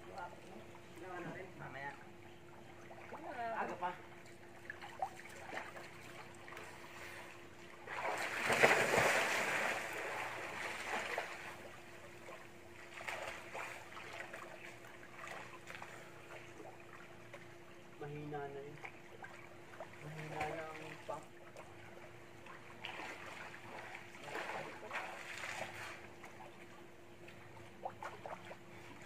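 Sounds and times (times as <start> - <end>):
water sloshing and lapping: 0.0 - 29.0
person splashing into pool: 7.9 - 11.5.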